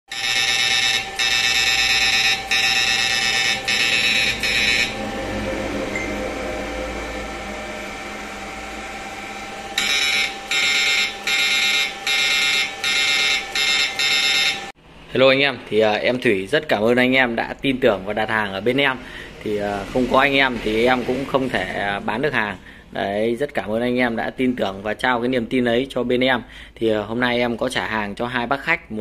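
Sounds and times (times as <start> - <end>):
inverter electronic buzz: 0.1 - 14.8.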